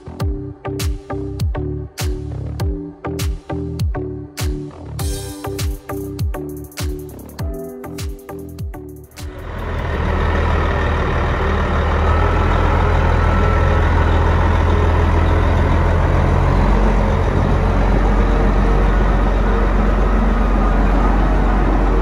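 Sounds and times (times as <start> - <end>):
diesel engine idling: 9.2 - 22.0.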